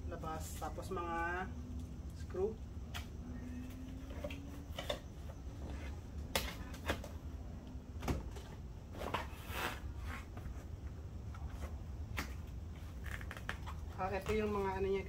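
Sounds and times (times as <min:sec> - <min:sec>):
cardboard scraping rustle: 0:08.3 - 0:10.7.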